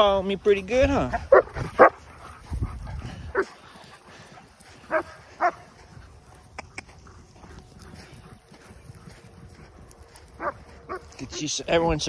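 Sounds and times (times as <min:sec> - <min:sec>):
dog barking: 0:01.1 - 0:02.0, 0:04.9 - 0:05.6, 0:10.4 - 0:11.0.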